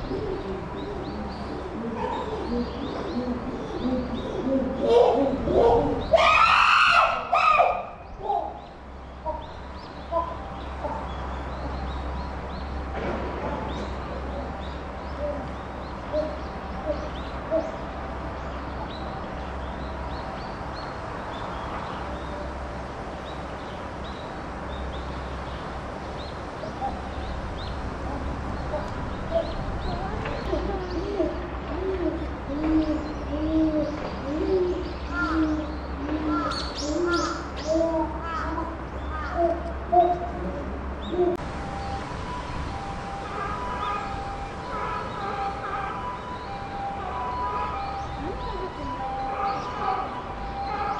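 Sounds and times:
lower bird calls: 0.0s - 22.5s, 26.2s - 50.9s
small birds chirping: 0.0s - 50.9s
chimpanzee hooting: 0.1s - 8.6s.

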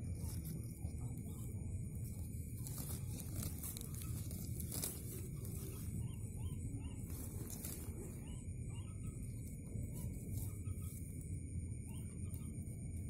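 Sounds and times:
sharp crackle: 0.0s - 8.2s
net rustling and crinkling: 1.9s - 6.3s, 7.0s - 8.2s.

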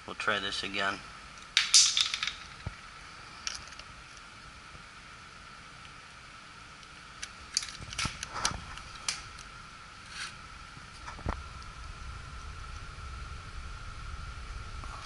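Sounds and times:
faint steady hum: 0.0s - 15.0s
wires being handled: 1.5s - 2.8s, 6.8s - 11.4s.

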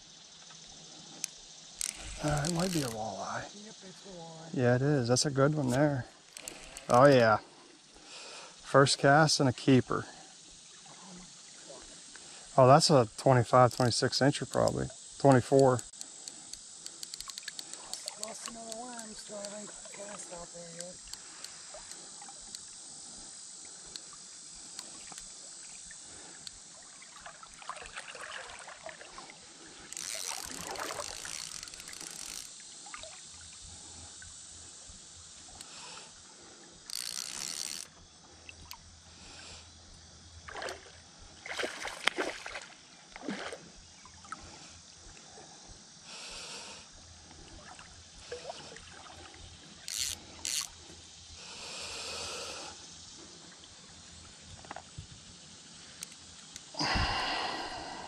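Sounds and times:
creek water running: 0.0s - 58.0s
fish splashing in shallow water: 16.0s - 34.3s, 40.4s - 45.0s, 47.4s - 51.3s.

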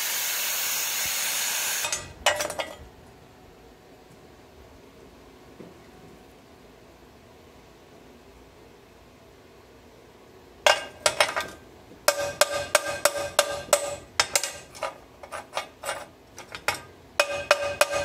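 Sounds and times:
tool striking steel plate: 10.7s - 18.0s.

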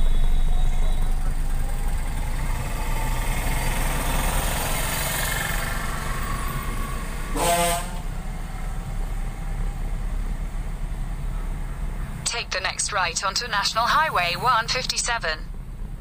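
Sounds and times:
vehicle horn honk: 7.3s - 8.1s.

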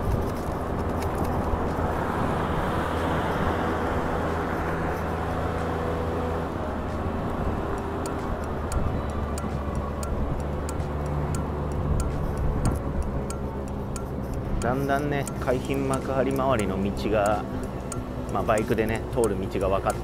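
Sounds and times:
road and wind noise: 0.0s - 20.0s
regular ticking: 4.0s - 20.0s.

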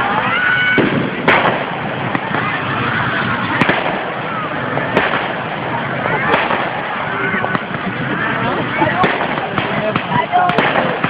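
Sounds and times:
continuous noisy din: 0.0s - 11.0s
firework shells bursting: 0.8s - 2.7s, 3.4s - 7.9s, 8.8s - 11.0s.

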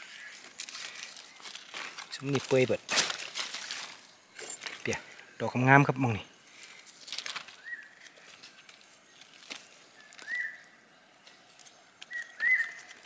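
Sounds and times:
light rustling and snapping: 0.5s - 4.9s, 6.8s - 10.3s
bird calling: 7.4s - 11.4s, 12.0s - 13.0s.

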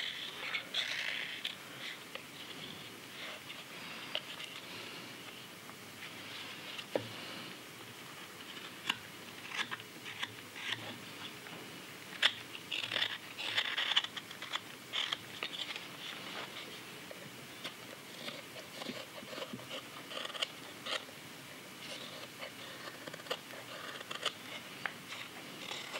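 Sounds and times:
knife carving wood: 0.0s - 4.6s, 8.4s - 11.0s, 12.1s - 16.8s, 17.6s - 21.1s, 21.8s - 25.9s.

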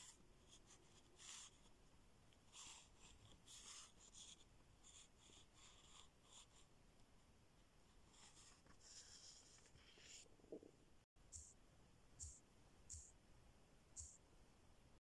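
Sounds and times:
pen scratching on paper: 0.0s - 1.7s, 2.5s - 6.7s, 8.0s - 10.2s.

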